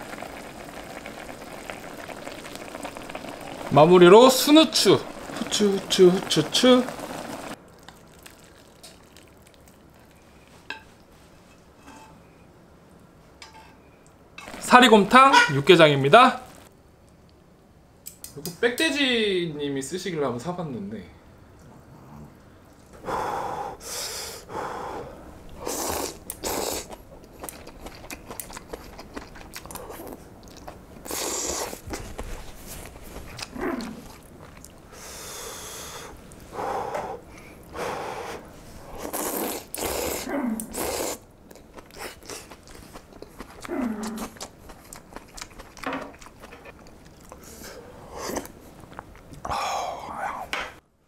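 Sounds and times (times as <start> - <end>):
chewing: 7.7 - 10.4, 25.8 - 34.8, 39.0 - 49.5
person slurping noodles: 24.4 - 30.3, 31.0 - 32.1, 37.8 - 41.2, 47.2 - 50.5.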